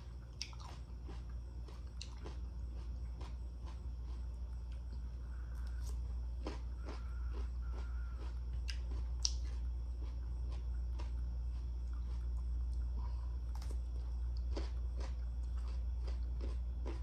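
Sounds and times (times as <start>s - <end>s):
person chewing: 0.0s - 17.0s
steady low hum: 0.0s - 17.0s.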